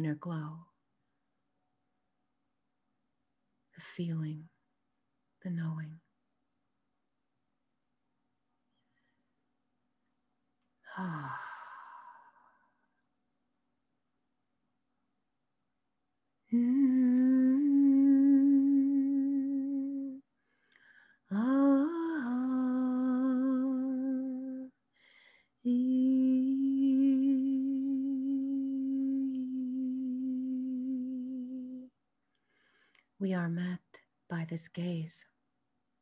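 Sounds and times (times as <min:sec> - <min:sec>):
woman humming: 0:10.9 - 0:12.7, 0:16.5 - 0:20.2, 0:21.3 - 0:24.7, 0:25.6 - 0:31.9
short breaths: 0:20.4 - 0:21.2.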